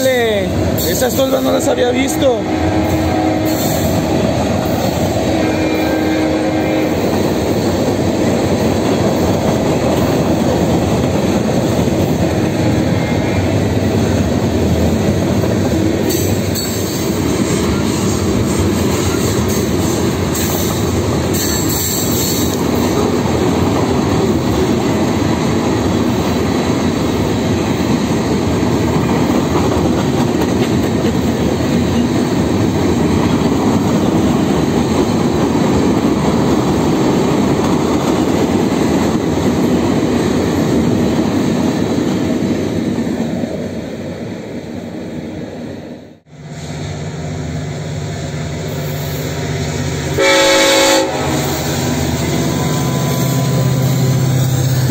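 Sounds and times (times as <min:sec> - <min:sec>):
train wheels rumbling on rails: 0:00.0 - 0:54.9
high wheel squeals: 0:51.4 - 0:54.9.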